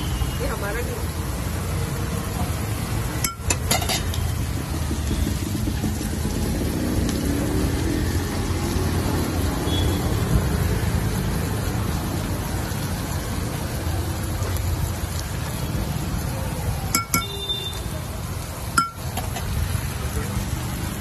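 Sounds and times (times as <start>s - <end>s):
ladle clinking on metal griddle: 3.2s - 4.2s, 16.9s - 17.4s, 18.7s - 19.6s.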